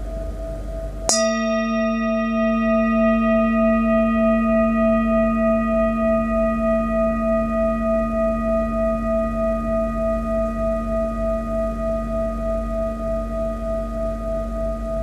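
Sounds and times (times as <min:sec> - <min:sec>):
singing bowl ringing: 0:00.0 - 0:15.0.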